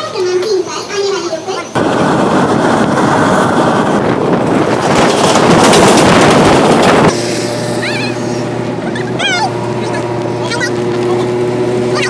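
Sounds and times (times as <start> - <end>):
passing train: 0.0 - 12.0
train wheels rushing on track: 0.0 - 12.0
wind on microphone: 1.8 - 7.8.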